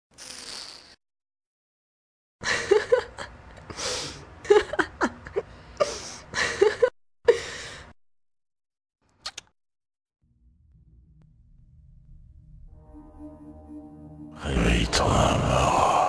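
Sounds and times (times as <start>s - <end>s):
woman laughing: 2.4s - 3.4s, 4.4s - 6.9s.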